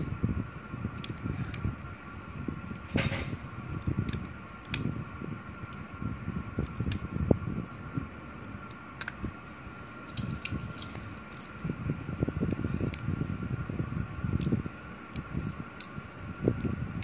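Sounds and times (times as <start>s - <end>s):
faint steady hum: 0.0s - 17.0s
soft rubbing and handling: 9.3s - 11.6s
plastic bricks clicking and clattering: 10.1s - 11.6s.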